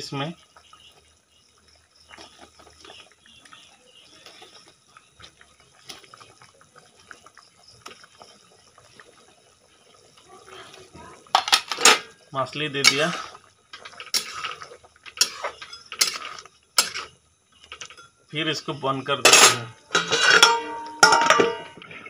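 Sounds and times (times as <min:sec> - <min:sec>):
curry bubbling and crackling: 0:00.0 - 0:22.0
loud metal clatter: 0:19.3 - 0:21.8.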